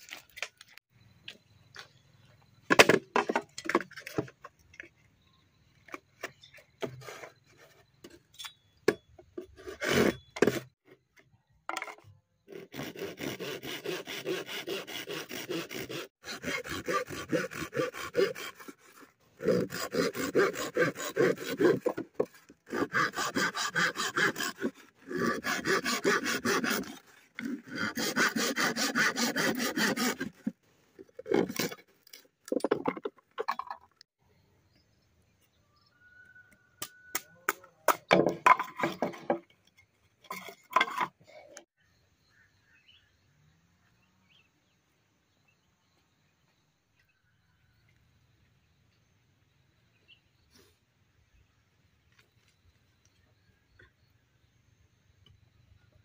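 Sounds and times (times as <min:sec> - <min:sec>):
saw cutting bamboo: 0:09.4 - 0:10.8, 0:12.5 - 0:32.7.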